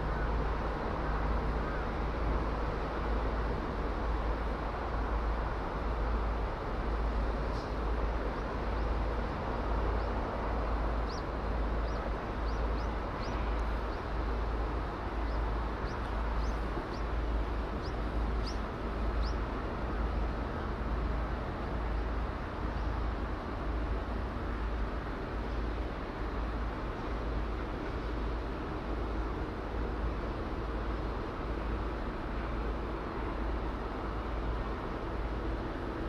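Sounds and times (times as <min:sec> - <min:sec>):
outdoor rumble and hiss: 0:00.0 - 0:36.0
small bird chirping: 0:11.0 - 0:14.1, 0:15.2 - 0:17.2, 0:17.8 - 0:19.4.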